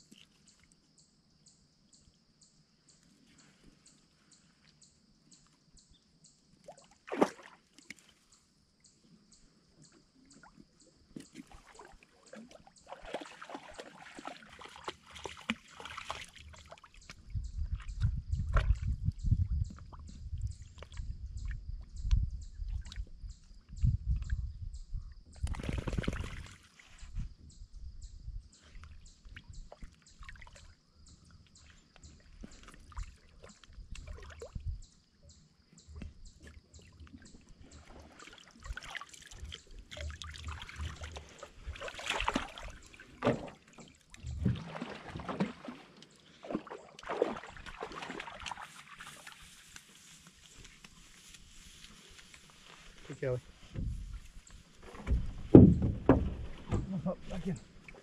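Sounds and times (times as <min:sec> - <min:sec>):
water splashing and dripping: 0:06.7 - 0:08.1, 0:11.2 - 0:21.6, 0:32.0 - 0:34.6, 0:36.0 - 0:58.0
dull low thumps: 0:17.2 - 0:22.8, 0:53.7 - 0:54.3, 0:54.9 - 0:57.6.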